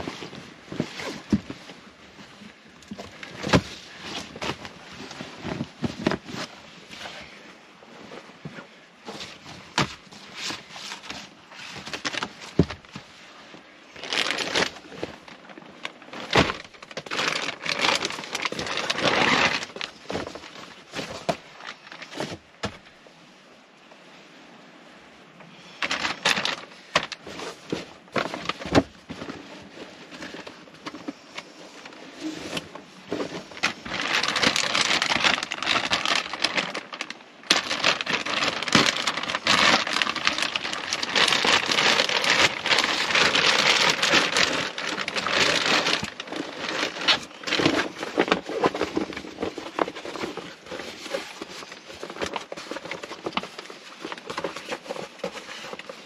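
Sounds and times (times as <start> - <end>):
plastic wrapping crinkling: 9.1 - 13.0, 13.9 - 22.8, 25.8 - 56.0.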